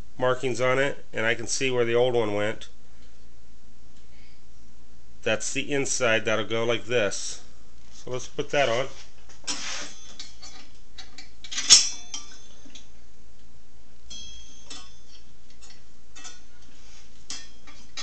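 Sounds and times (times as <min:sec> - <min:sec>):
saw blade clinking and scraping: 0:11.6 - 0:12.6
saw blade ringing: 0:11.6 - 0:12.6, 0:14.1 - 0:16.5.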